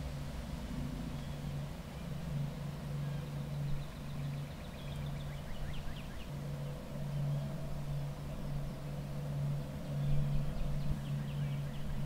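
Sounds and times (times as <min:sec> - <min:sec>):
bird chirping: 0:01.1 - 0:06.4.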